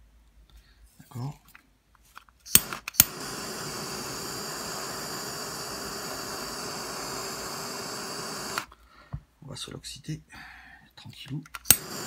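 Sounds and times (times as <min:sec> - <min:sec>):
gas torch ignition click: 0:02.5 - 0:08.7, 0:11.6 - 0:12.0
torch flame hissing: 0:02.5 - 0:08.7, 0:11.7 - 0:12.0.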